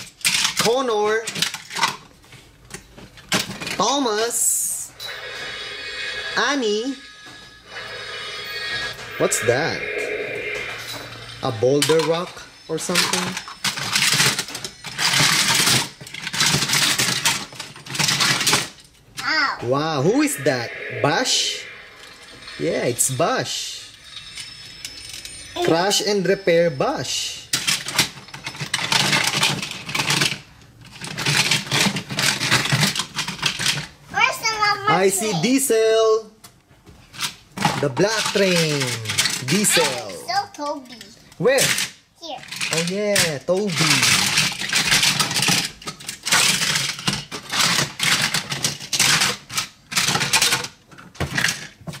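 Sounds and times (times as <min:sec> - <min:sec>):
plastic toy trains clattering: 0:00.0 - 0:02.1, 0:02.7 - 0:04.0, 0:11.8 - 0:19.0, 0:27.5 - 0:34.0, 0:37.1 - 0:52.0.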